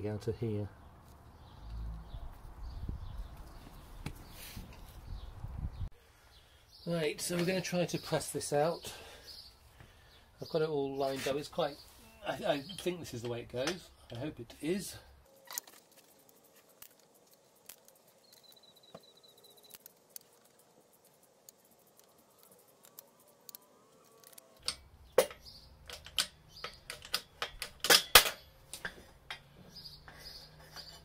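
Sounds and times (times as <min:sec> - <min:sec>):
metal clicks and knocks: 0:24.3 - 0:29.5.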